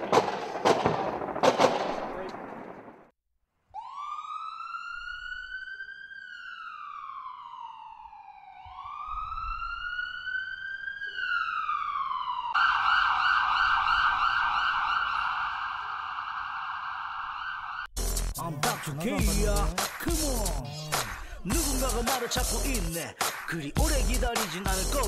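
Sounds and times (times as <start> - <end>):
emergency vehicle siren: 3.7 - 17.9.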